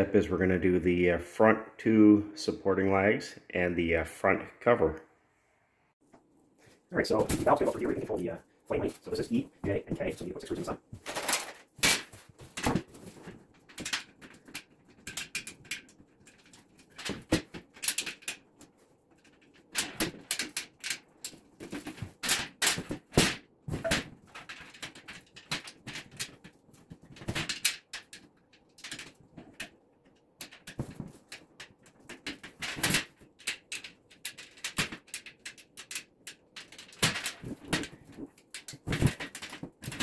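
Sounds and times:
steel panels clinking and knocking: 9.1 - 40.0.

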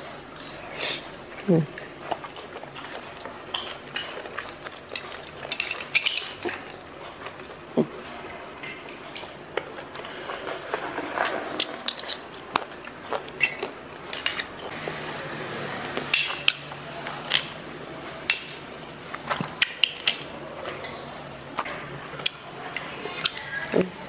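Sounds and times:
metal spoons clinking on ceramic bowls: 5.0 - 6.4, 8.6 - 8.9, 13.4 - 14.4, 16.1 - 16.6, 19.8 - 21.1.

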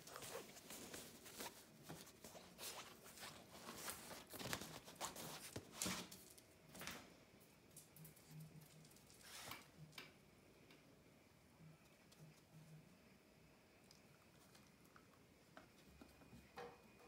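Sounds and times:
clothing brushing: 0.0 - 5.9
dog scrabbling against trousers: 0.0 - 6.1.

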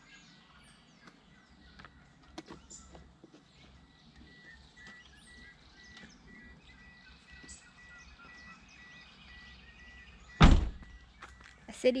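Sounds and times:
birdsong chirps: 0.0 - 12.0
loud thump: 10.4 - 10.9.

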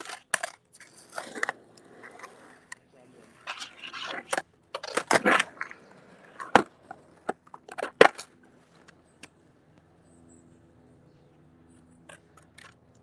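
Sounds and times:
skateboard scraping on pavement: 0.0 - 9.1
skateboard clacks: 0.0 - 9.4, 12.0 - 13.0.

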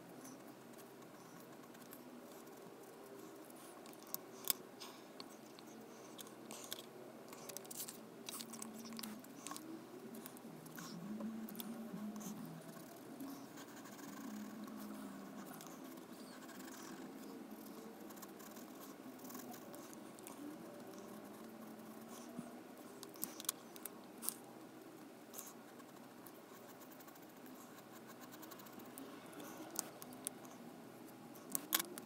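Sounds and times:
pen scratching on paper: 7.4 - 24.4.

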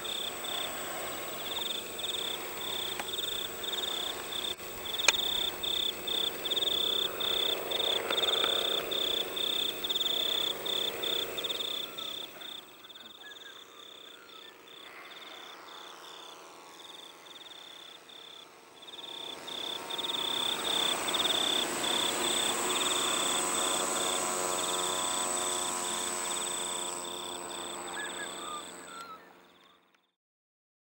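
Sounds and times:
insects chirping: 0.0 - 29.8
small drone motors whining: 0.0 - 30.1.

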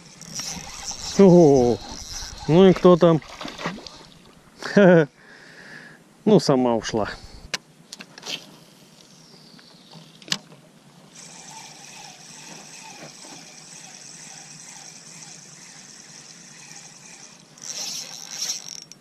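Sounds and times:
fishing reel whirring: 0.0 - 4.2, 7.1 - 7.5, 11.1 - 19.0.

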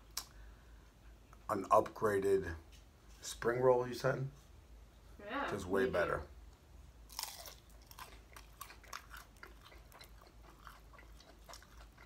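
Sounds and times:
chewing with crisp crackles: 7.0 - 12.0.

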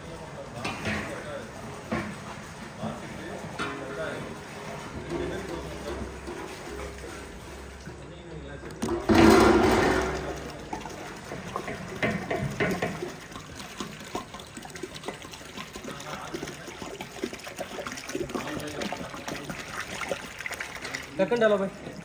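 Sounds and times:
water pouring into metal pot: 9.0 - 22.0.

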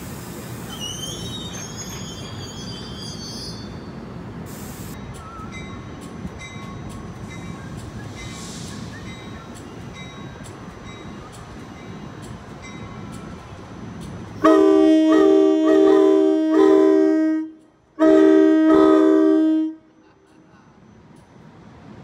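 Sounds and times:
train rumbling: 0.0 - 22.0
locomotive air horn blasts: 14.4 - 19.9.

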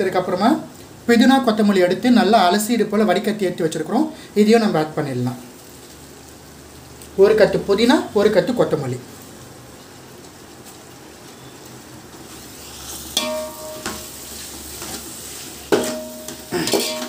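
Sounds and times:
vegetables sizzling in oil: 0.0 - 17.0
ladle clanking against pot: 15.7 - 17.0.

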